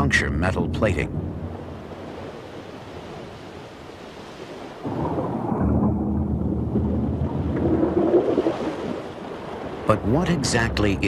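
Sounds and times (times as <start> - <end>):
deep low rumble: 4.9 - 8.2.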